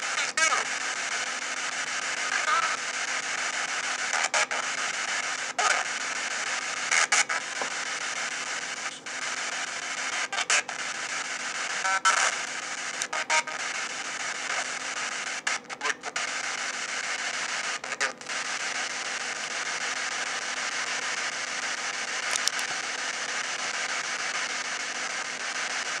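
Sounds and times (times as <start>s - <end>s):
radio static hiss: 0.0s - 26.0s
snatch of radio station sound: 7.0s - 8.1s, 22.2s - 22.8s.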